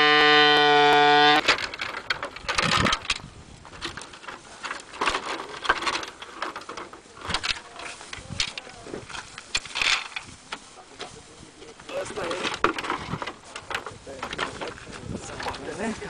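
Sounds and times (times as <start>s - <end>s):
plastic horn blast: 0.0s - 1.5s
wooden poles clattering on gravel: 0.0s - 16.0s.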